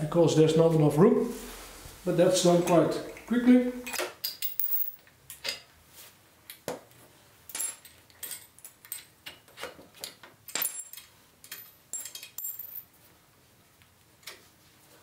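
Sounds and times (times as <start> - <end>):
metal clinks and knocks: 10.0 - 12.9.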